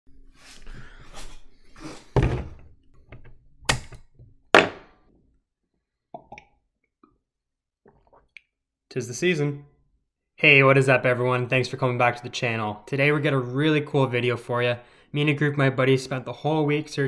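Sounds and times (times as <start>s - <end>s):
objects knocking and thumping: 2.1s - 5.1s.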